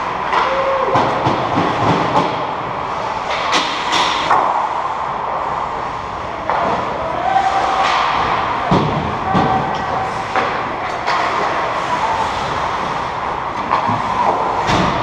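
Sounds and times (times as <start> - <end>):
hockey sticks and puck clacking: 0.1 - 2.5, 3.1 - 5.0, 6.4 - 15.0.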